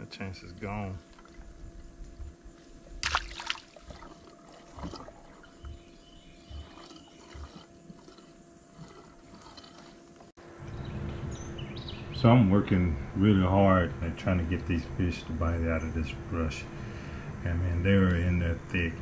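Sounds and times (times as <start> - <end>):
water splashing and dripping: 3.0 - 5.6.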